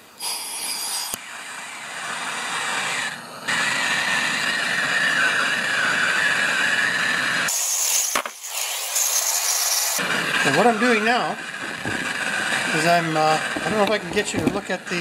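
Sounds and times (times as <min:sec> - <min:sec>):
aerosol spray can hissing: 0:00.2 - 0:10.0.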